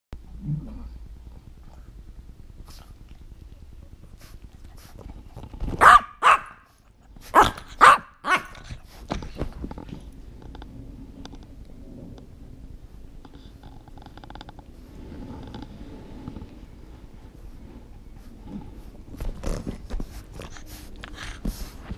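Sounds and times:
dog barking: 5.8 - 6.7, 7.3 - 8.5.

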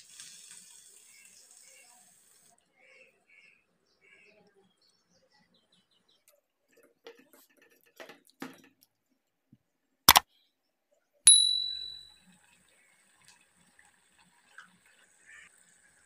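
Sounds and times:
faint clinks: 11.3 - 12.1
notification bell ding: 11.3 - 12.1.

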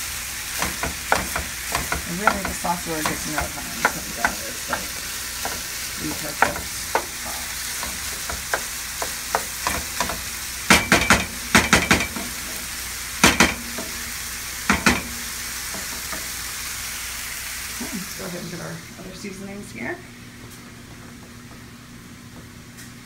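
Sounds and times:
meat sizzling in a frying pan: 0.0 - 19.7
wooden spoon scraping a pan: 0.6 - 10.4
spoon knocking against pan: 0.6 - 12.6, 13.2 - 14.1, 14.7 - 16.4.

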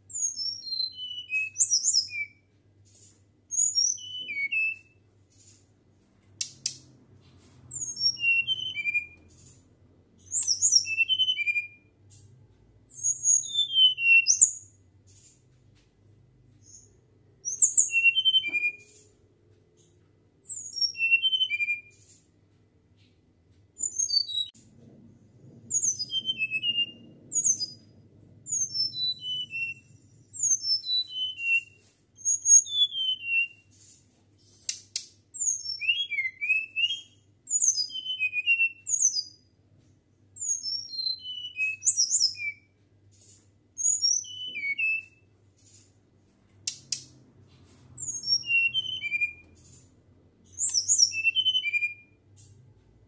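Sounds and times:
bird whistling song: 0.1 - 2.4, 3.5 - 5.0, 7.7 - 9.4, 10.2 - 11.9, 12.9 - 14.8, 16.6 - 19.0, 20.5 - 22.0, 23.8 - 24.6, 25.7 - 27.9, 28.5 - 33.7, 35.3 - 39.4, 40.4 - 42.8, 43.8 - 45.3, 48.0 - 49.8, 50.5 - 52.2.

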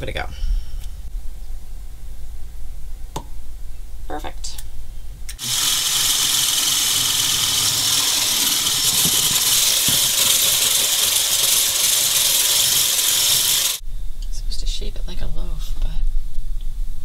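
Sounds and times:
stick blender whirring: 5.4 - 13.8.

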